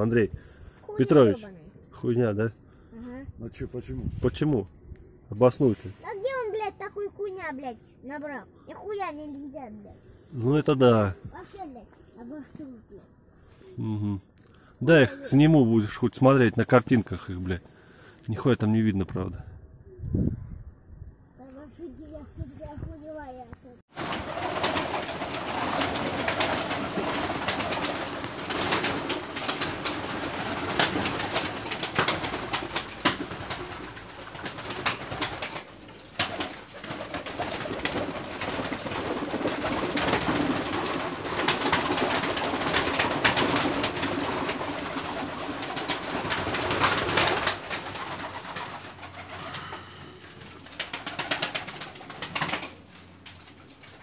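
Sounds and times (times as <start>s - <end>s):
wings flapping: 23.9s - 54.0s
pigeons cooing: 24.0s - 52.9s.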